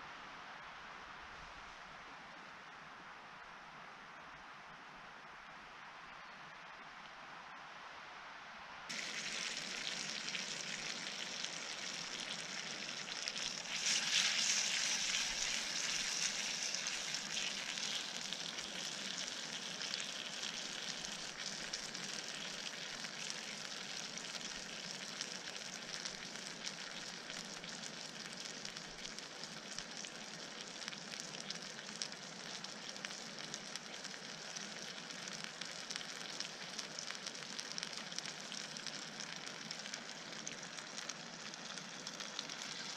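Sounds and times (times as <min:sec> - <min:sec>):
meat sizzling in a frying pan: 0:08.9 - 0:42.9.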